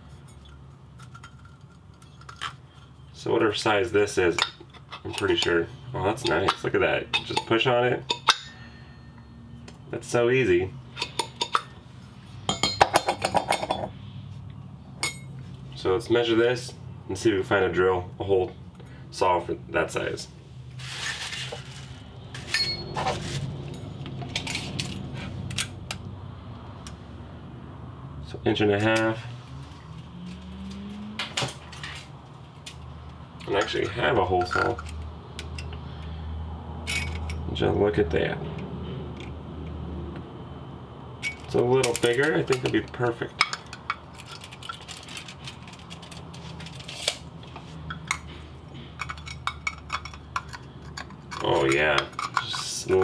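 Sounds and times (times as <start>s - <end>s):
metal parts clicking: 43.4s - 47.2s, 49.0s - 53.0s.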